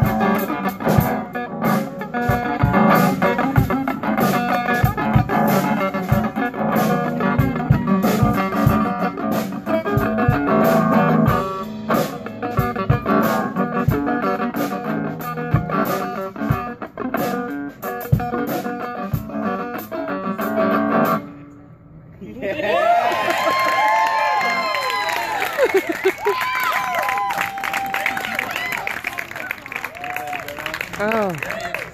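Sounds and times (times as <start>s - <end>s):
drum kit beat: 0.0s - 21.2s
electric guitar playing: 0.0s - 21.9s.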